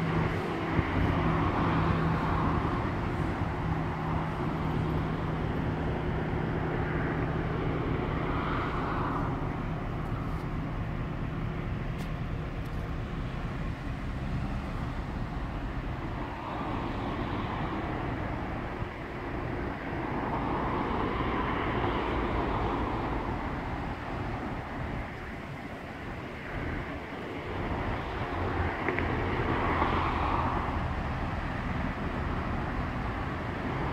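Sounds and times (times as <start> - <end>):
continuous rolling noise: 0.0 - 33.9
locomotive diesel engine hum: 0.0 - 33.9.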